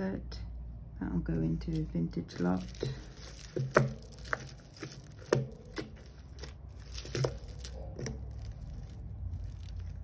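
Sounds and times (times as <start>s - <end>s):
beads and chains rattling: 1.7s - 10.0s.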